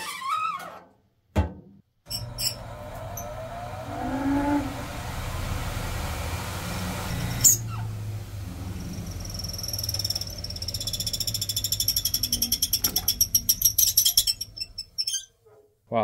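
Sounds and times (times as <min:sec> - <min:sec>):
spin dryer motor hum and whine: 0:02.1 - 0:15.0
short squeak: 0:09.3 - 0:15.4.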